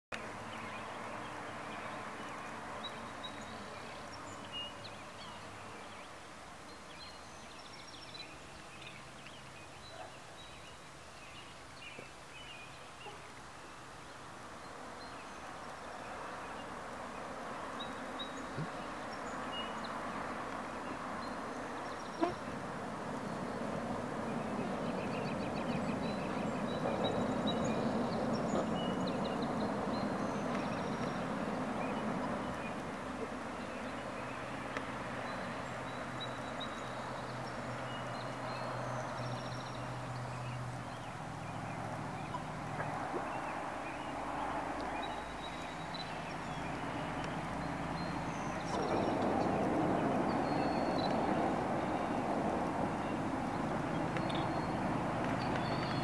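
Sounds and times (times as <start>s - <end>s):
bird chirps and calls: 44.8s - 51.4s.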